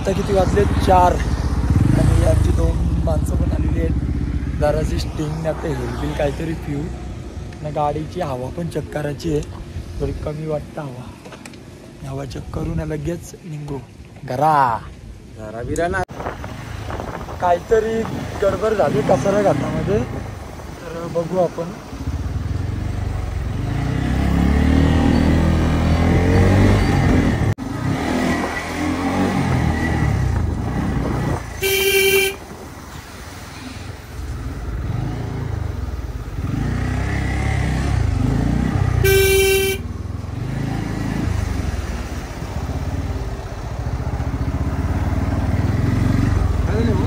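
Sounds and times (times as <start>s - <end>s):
wind on microphone: 15.8s - 18.7s
vehicle horn toots: 31.5s - 32.5s, 39.0s - 39.9s
motorcycle engine running: 34.7s - 41.6s.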